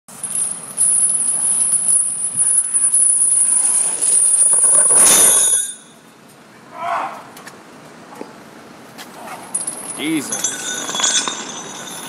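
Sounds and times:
steel chains dragged on concrete: 0:00.1 - 0:06.0, 0:09.4 - 0:12.0.

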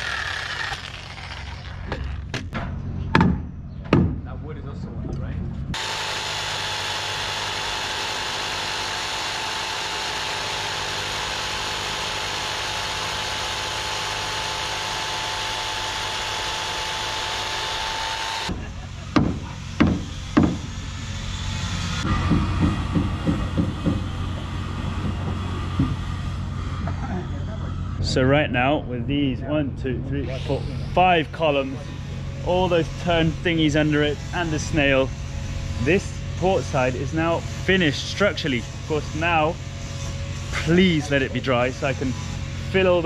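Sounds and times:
jigsaw cutting wood: 0:00.0 - 0:02.3, 0:05.8 - 0:18.6
sharp knocks: 0:02.3 - 0:04.2, 0:19.2 - 0:20.7, 0:22.0 - 0:24.1.

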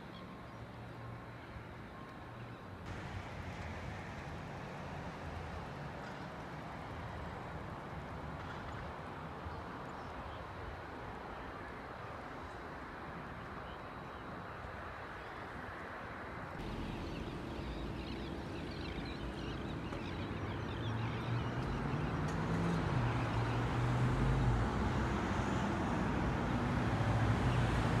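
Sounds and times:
cars passing on street: 0:00.6 - 0:09.9, 0:16.1 - 0:28.0.

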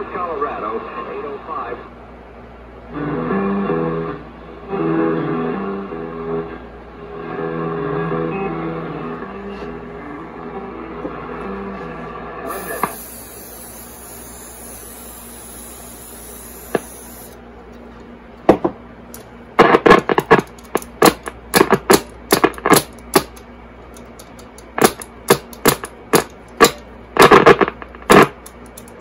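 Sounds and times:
high whine: 0:02.8 - 0:17.6
radio hiss: 0:12.5 - 0:17.4
radio pops and crackles: 0:16.7 - 0:17.0, 0:19.6 - 0:23.4, 0:25.6 - 0:29.0.

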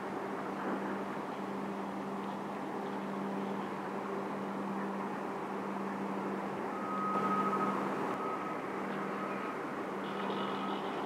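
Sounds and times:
low engine hum: 0:00.0 - 0:11.0
outdoor noise: 0:00.0 - 0:11.0
thin high tone: 0:06.7 - 0:11.0.

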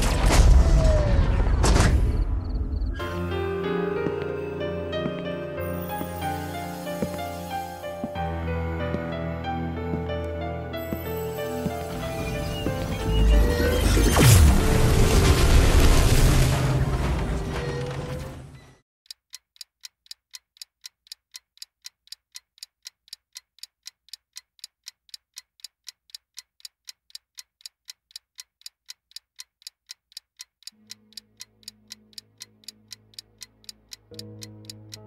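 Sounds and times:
clock ticking: 0:10.0 - 0:14.3, 0:19.0 - 0:35.0.

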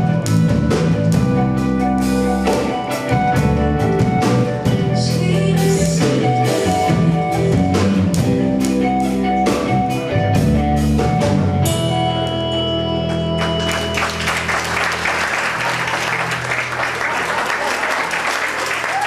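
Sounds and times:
live rock band playing: 0:00.0 - 0:19.0
audience applause: 0:13.4 - 0:19.0.

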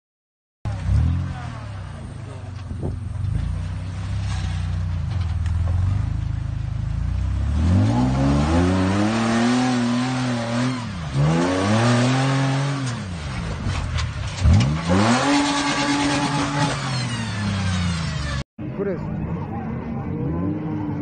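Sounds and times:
engine revving: 0:00.7 - 0:02.4, 0:03.3 - 0:18.4, 0:19.2 - 0:21.0.

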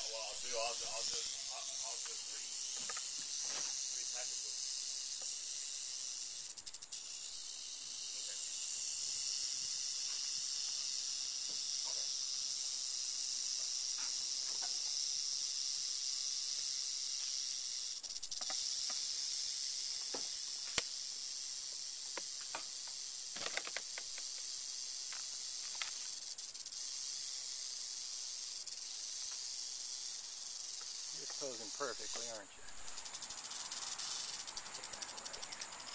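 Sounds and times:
rattlesnake rattling: 0:00.0 - 0:35.9.

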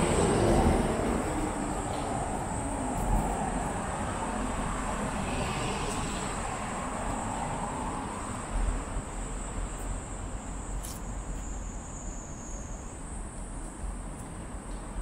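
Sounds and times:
road traffic: 0:00.0 - 0:15.0.

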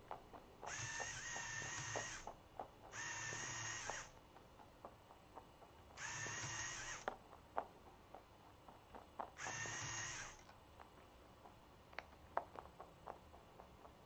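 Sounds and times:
rabbit chewing food pellets: 0:00.0 - 0:14.0
robot motor whirring: 0:00.7 - 0:02.3, 0:02.9 - 0:04.1, 0:06.0 - 0:07.1, 0:09.4 - 0:10.4.

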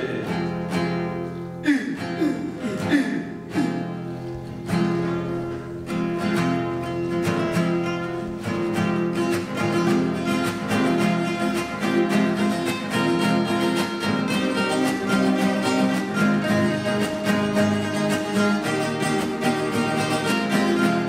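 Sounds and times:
acoustic guitars strumming: 0:00.0 - 0:21.0.

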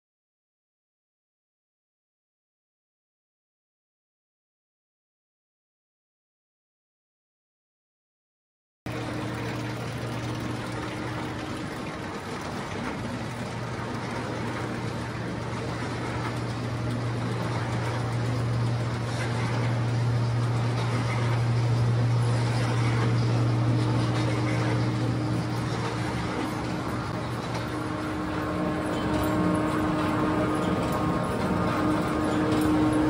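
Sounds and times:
faint whine: 0:08.9 - 0:33.0
low machinery hum: 0:08.9 - 0:33.0.

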